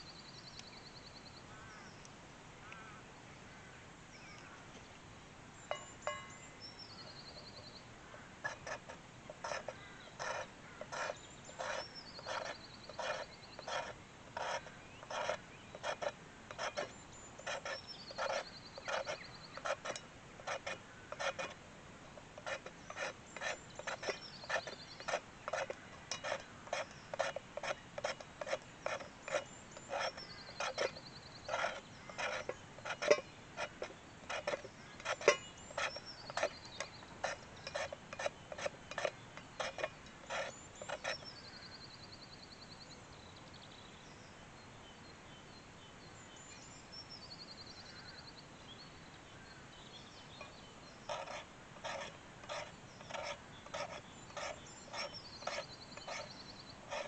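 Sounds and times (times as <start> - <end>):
knife scraping wooden stick: 8.4 - 41.7, 50.4 - 57.0.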